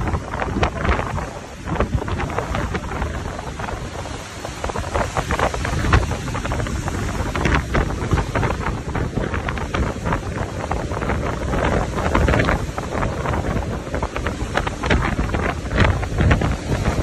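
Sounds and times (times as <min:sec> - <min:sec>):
rough sea breaking: 0:00.0 - 0:17.0
wind buffeting microphone: 0:00.0 - 0:17.0.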